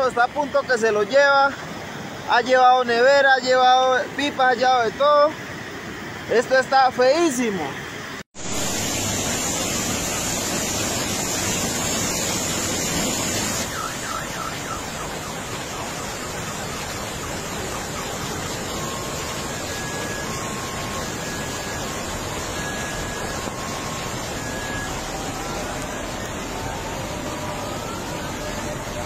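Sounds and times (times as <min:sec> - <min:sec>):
steady rushing noise: 0:00.0 - 0:29.0
car alarm: 0:13.0 - 0:29.0.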